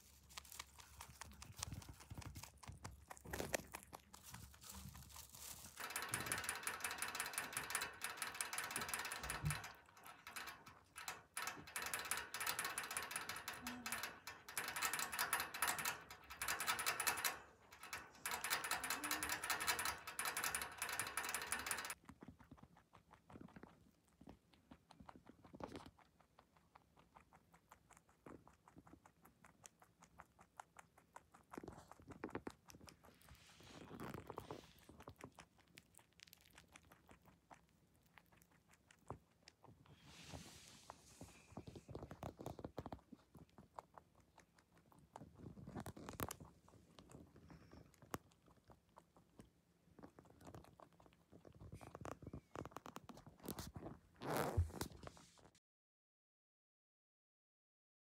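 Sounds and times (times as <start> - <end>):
rabbit drinking from water bottle: 0.0 - 55.5
small clicks: 5.8 - 22.0.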